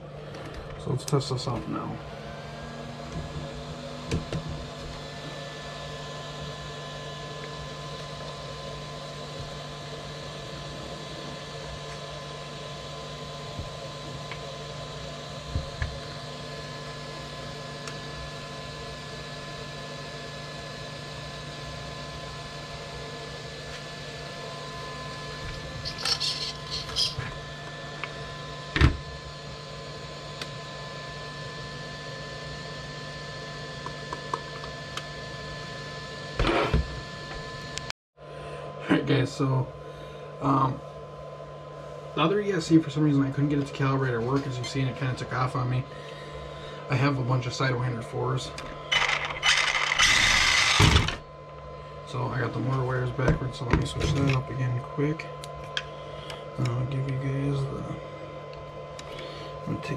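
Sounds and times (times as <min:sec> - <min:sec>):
electrical hum: 0:00.0 - 0:59.9.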